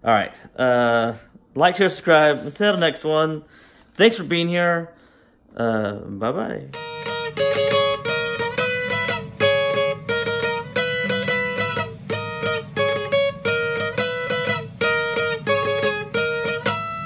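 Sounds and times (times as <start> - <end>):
plucked guitar notes: 6.6 - 17.0.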